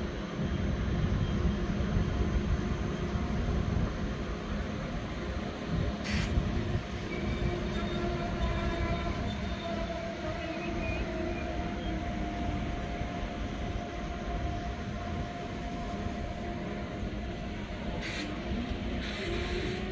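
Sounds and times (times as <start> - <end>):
train wheels rumbling on track: 0.0 - 19.9
train whine: 0.0 - 19.9.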